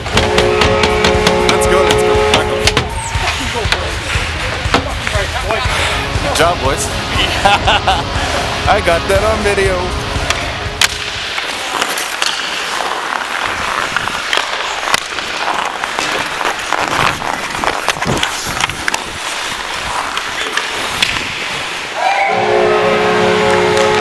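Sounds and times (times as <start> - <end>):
hockey sticks and puck clacking: 0.0 - 5.6, 10.2 - 22.0, 23.1 - 24.0
music: 0.2 - 11.0
skate blades scraping on ice: 10.1 - 22.2, 22.8 - 24.0.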